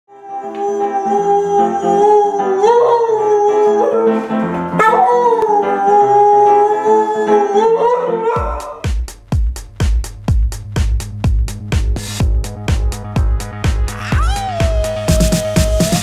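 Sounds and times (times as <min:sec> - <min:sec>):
dog howling: 0:00.1 - 0:08.9, 0:14.0 - 0:16.0
background music: 0:00.1 - 0:16.0.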